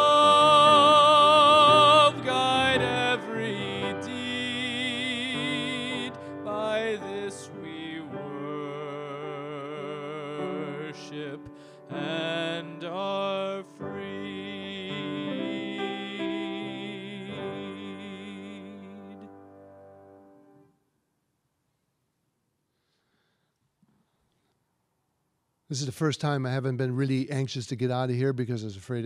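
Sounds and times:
man singing a hymn: 0.0 - 19.3
grand piano: 0.0 - 20.6.

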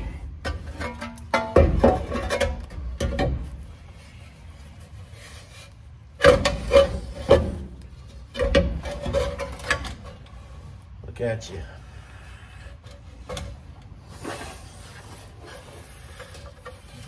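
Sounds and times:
metal crossmember clanking and scraping: 0.0 - 4.2, 5.0 - 10.7.

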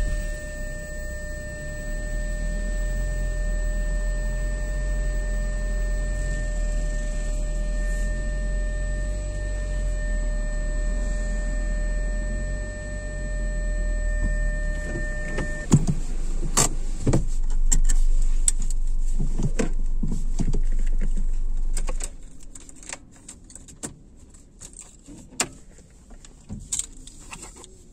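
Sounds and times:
faint steady tone: 0.0 - 15.7
car engine rumble: 0.0 - 27.9
clicks and knocks in car cabin: 14.2 - 27.8.

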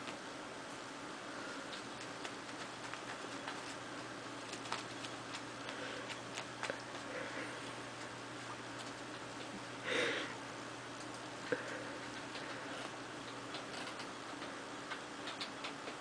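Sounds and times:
faint steady hum: 0.0 - 16.0
cat scratching toy on carpet: 2.0 - 3.8.

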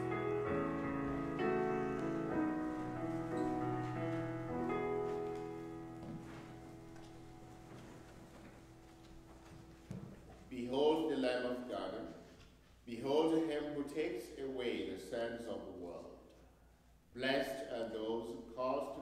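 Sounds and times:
keyboard playing held chords: 0.0 - 10.5.

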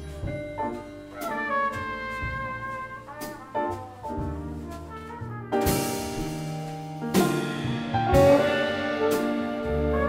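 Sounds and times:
jazz ensemble playing chords: 0.0 - 10.0
trumpet playing: 1.1 - 6.5, 8.1 - 10.0.

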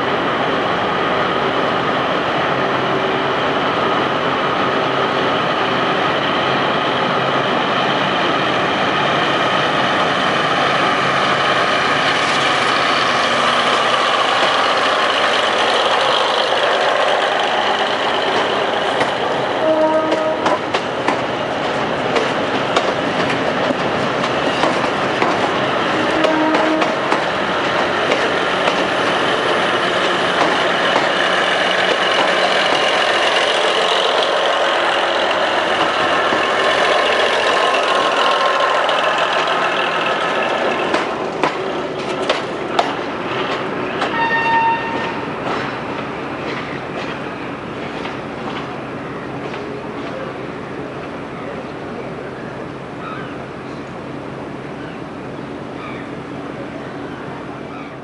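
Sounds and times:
diesel railcar engines running: 0.0 - 58.0
wheels clicking over rail joints: 12.1 - 44.2.

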